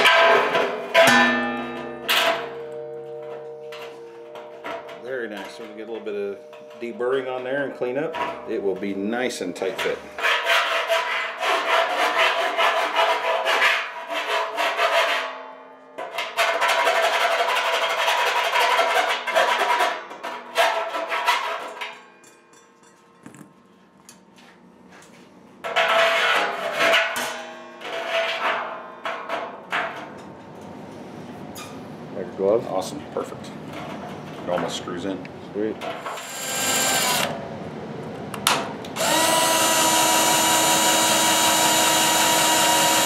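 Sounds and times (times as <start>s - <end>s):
deburring tool rasping on steel: 36.0s - 37.3s, 39.0s - 43.0s.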